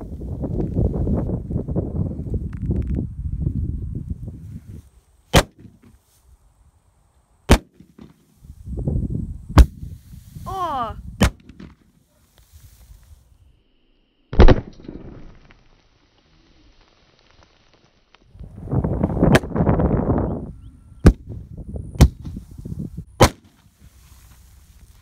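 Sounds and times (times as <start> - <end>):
gas detonation cracks: 14.3 - 15.8.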